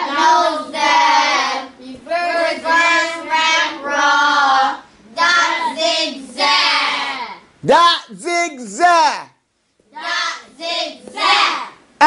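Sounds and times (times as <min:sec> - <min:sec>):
children chanting in unison: 0:00.0 - 0:07.4, 0:09.9 - 0:11.8.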